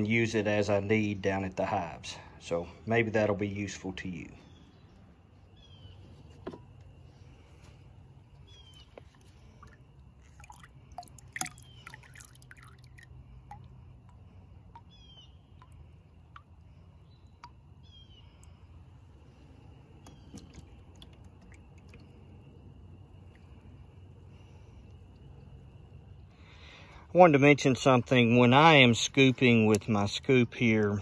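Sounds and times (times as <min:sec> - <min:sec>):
bird chirping: 0:03.7 - 0:06.4, 0:08.4 - 0:09.6, 0:11.5 - 0:12.0, 0:14.7 - 0:18.7
water splashing and dripping: 0:08.3 - 0:27.0
metal ladle dipping into water: 0:09.0 - 0:16.8.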